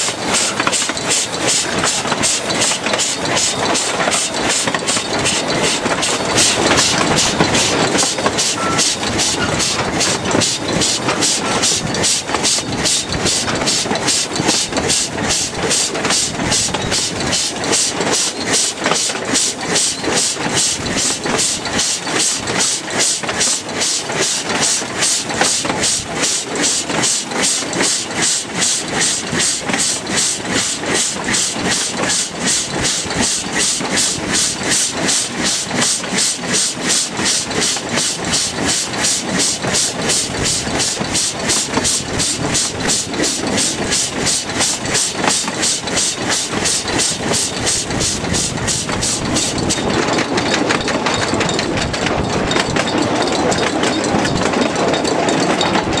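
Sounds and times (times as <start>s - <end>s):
diesel locomotive drone: 0.0s - 56.0s
train rhythmic clatter: 0.0s - 56.0s.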